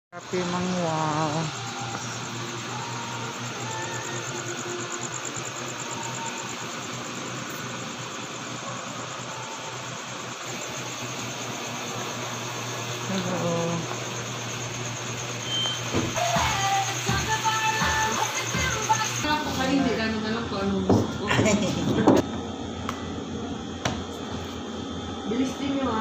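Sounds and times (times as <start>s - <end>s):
fast high pulsing: 0.1s - 7.2s, 9.2s - 20.8s
motor humming and hissing: 0.2s - 26.0s.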